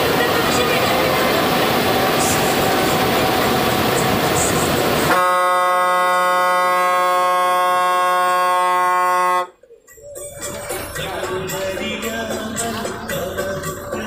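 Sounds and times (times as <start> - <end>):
road rattle: 0.0 - 7.2, 10.3 - 14.0
bus engine running: 0.0 - 9.4, 10.2 - 14.0
bus horn blast: 5.0 - 9.6.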